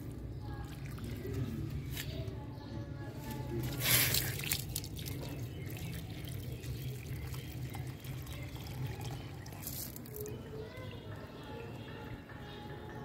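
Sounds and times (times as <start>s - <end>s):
water pouring into plant pot: 0.6s - 1.9s, 3.4s - 10.5s.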